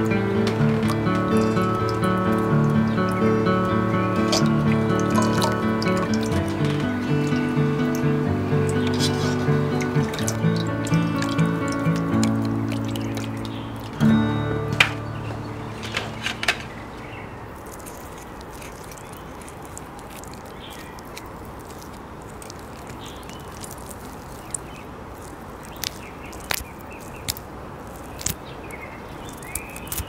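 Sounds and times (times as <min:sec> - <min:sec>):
scissors snipping: 0:29.4 - 0:30.0.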